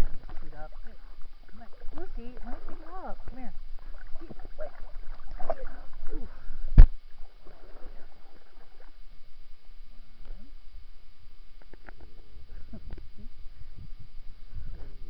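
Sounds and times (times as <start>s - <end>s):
water sloshing and splashing: 0.0s - 9.0s.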